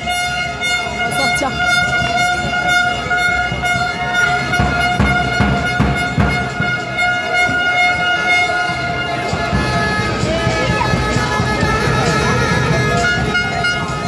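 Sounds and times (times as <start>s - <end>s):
air horn steady note: 0.0s - 14.0s
crowd noise in arena: 0.0s - 14.0s
rhythmic beats: 0.0s - 14.0s.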